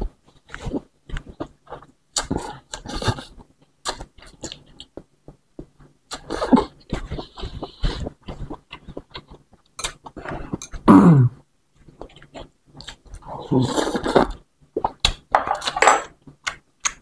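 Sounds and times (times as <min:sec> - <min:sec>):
chewing and lip noises: 0:00.1 - 0:10.9, 0:11.8 - 0:15.8
slurping noodles and broth: 0:13.2 - 0:14.4.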